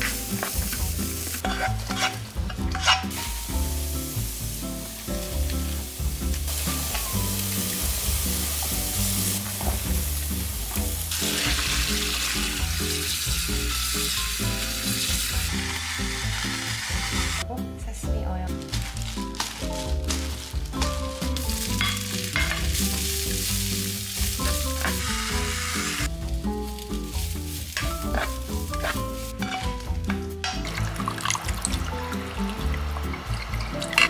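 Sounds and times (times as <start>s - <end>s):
food sizzling in a pan: 0.0s - 17.4s, 18.6s - 34.0s
background music: 0.0s - 34.0s.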